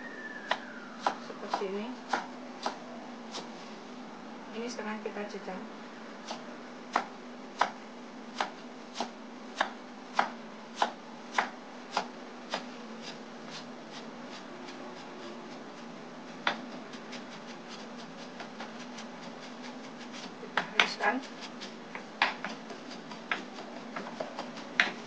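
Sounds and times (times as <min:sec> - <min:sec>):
faint steady hum: 0:00.0 - 0:25.0
knife chopping on wooden board: 0:00.5 - 0:03.5, 0:06.3 - 0:13.6, 0:16.4 - 0:25.0.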